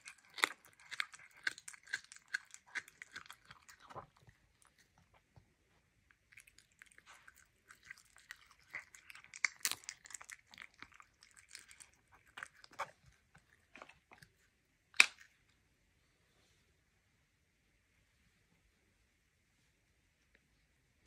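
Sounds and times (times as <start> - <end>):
animal chewing raw meat: 0.0 - 5.0, 6.3 - 14.3.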